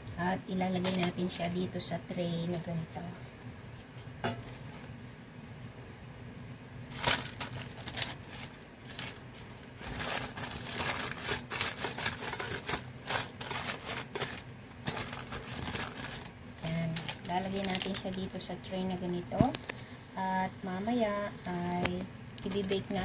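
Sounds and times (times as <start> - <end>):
baking paper crinkling: 0.6 - 2.9, 6.9 - 19.7, 22.4 - 23.0.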